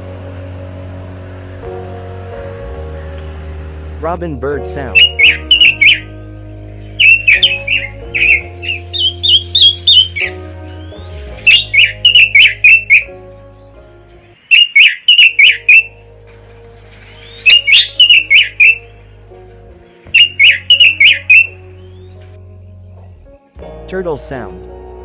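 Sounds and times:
soft background music: 0.0s - 25.0s
robin calling: 4.6s - 13.8s, 14.4s - 16.0s, 17.1s - 19.0s, 20.1s - 22.3s.

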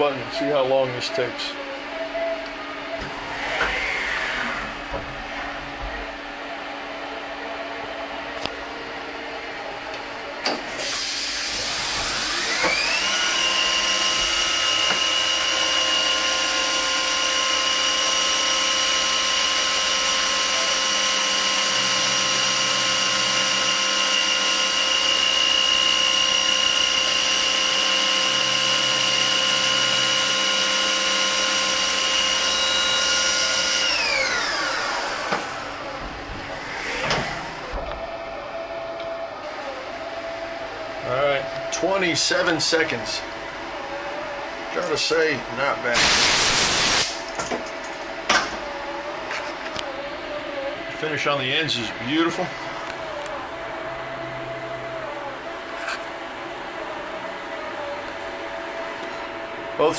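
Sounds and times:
milling machine spindle whine: 0.0s - 59.9s
end mill cutting plastic: 10.4s - 39.8s.

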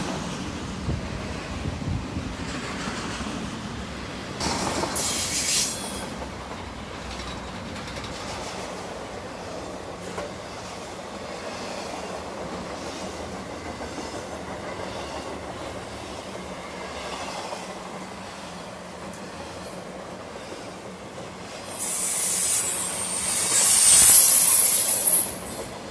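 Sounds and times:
train wheels rumbling on rail: 0.0s - 25.9s
high hiss of wheel noise: 4.4s - 6.2s, 21.6s - 25.7s.

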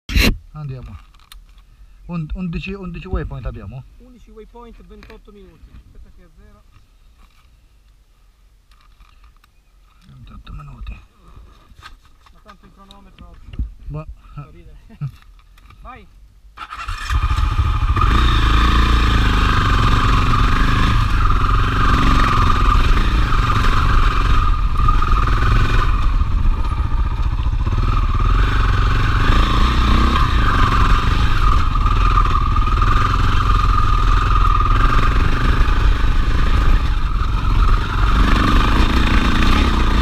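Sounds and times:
motorcycle engine running: 16.8s - 40.0s.

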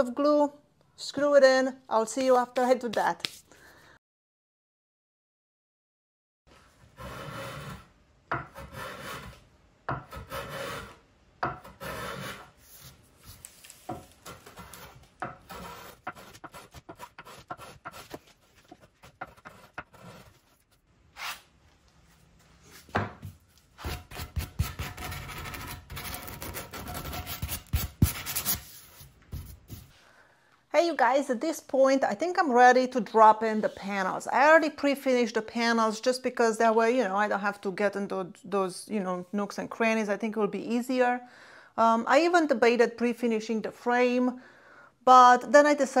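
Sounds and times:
tool scraping across wood: 6.5s - 11.0s, 11.6s - 21.5s, 23.8s - 28.7s.

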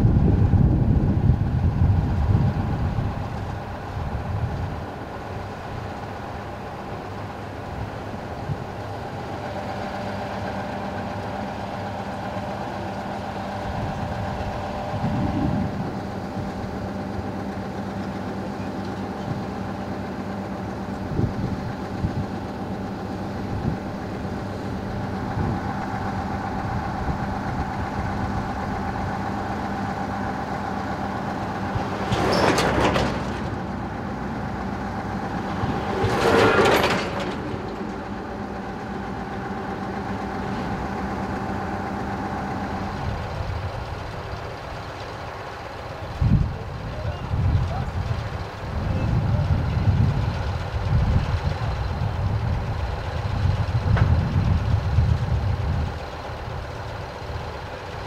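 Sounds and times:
diesel engine idling: 0.0s - 58.0s
rushing bursts of noise: 19.4s - 46.8s.

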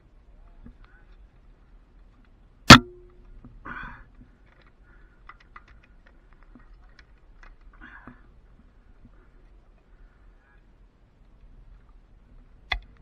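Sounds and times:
sharp metal knock with ring: 2.7s - 3.1s
light clicks and rattles: 3.1s - 13.0s.

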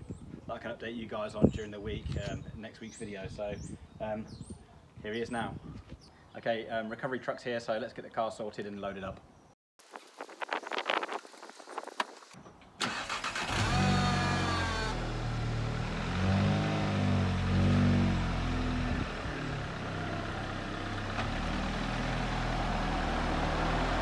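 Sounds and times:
truck engine starting and revving: 12.8s - 24.0s.

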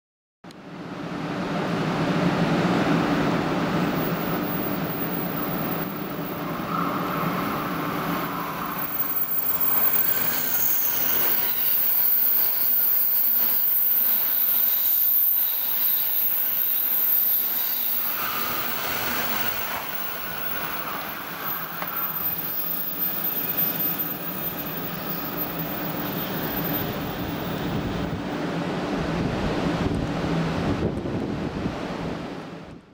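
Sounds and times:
high-speed train passing: 0.5s - 32.9s.

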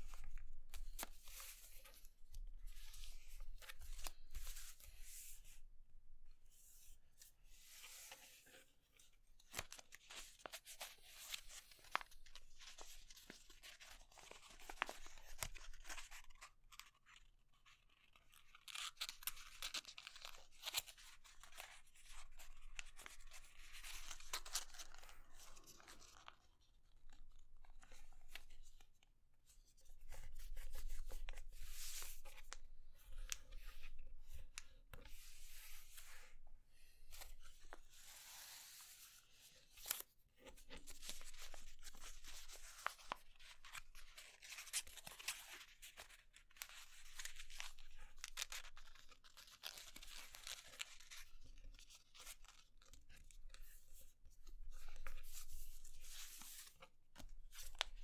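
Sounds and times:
paper crinkling and rustling: 9.4s - 28.6s, 37.1s - 58.0s
paper crackling as folded: 9.5s - 17.2s, 22.1s - 26.5s, 39.8s - 53.8s.

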